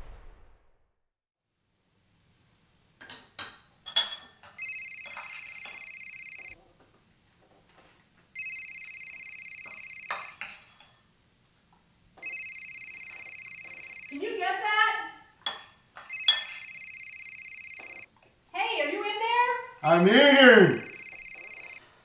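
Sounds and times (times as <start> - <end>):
spoon clinking on bowl: 3.1 - 4.4
electronic telephone ringing: 4.6 - 6.6, 8.4 - 10.4, 12.2 - 14.3, 16.1 - 18.1, 19.9 - 21.8.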